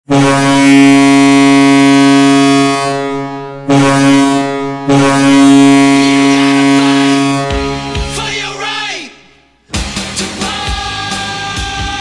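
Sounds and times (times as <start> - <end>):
deep loud goal horn blasts: 0.0 - 8.2.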